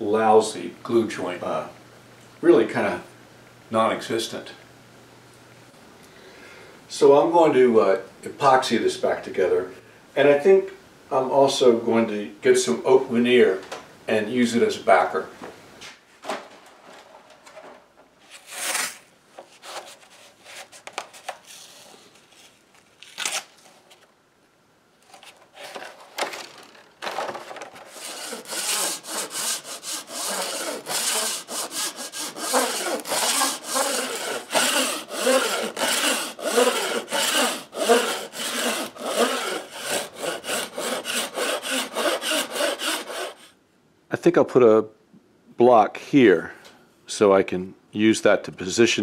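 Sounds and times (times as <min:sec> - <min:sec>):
hand saw cutting wood veneer: 0:27.9 - 0:43.5.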